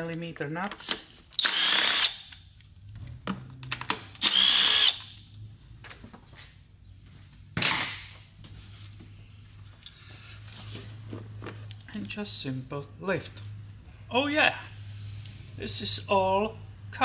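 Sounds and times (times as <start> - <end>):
cordless power tool running: 4.2 - 5.1.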